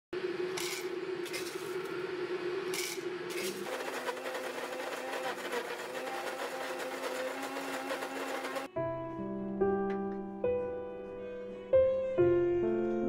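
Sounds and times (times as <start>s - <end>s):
electric coffee grinder whirring: 3.3s - 8.7s.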